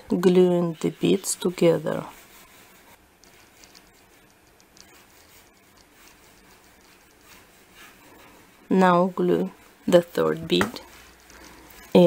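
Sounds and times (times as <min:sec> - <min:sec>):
fingers handling plastic beads: 0:03.0 - 0:07.8.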